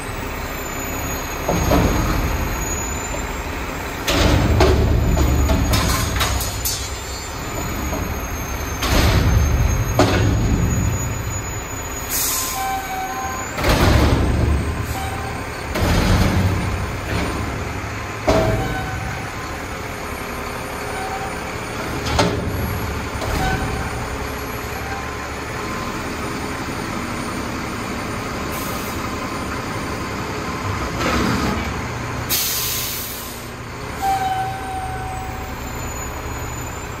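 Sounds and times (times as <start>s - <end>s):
garbage truck diesel engine: 0.0s - 37.0s
air brake hiss: 12.0s - 12.9s, 28.5s - 29.0s, 32.3s - 33.6s.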